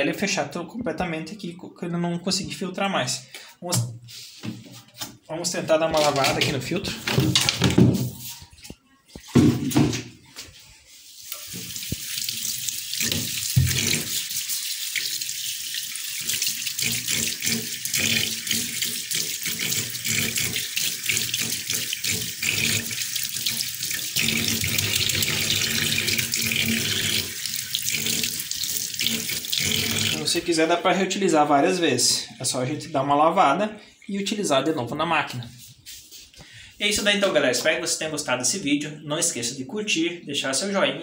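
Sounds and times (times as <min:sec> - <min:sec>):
sponge being rinsed by hand: 0:07.8 - 0:30.7
tap water splashing into sink: 0:11.3 - 0:30.3.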